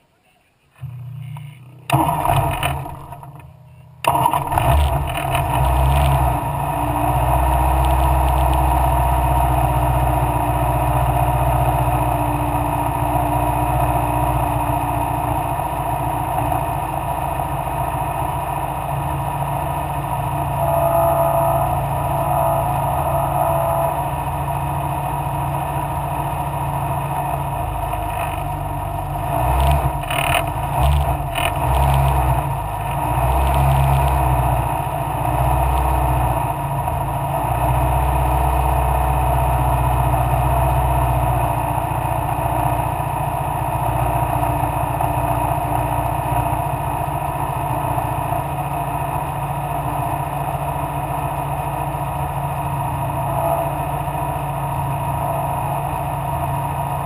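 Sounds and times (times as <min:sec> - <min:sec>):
racing car engine running: 0:00.7 - 0:57.0.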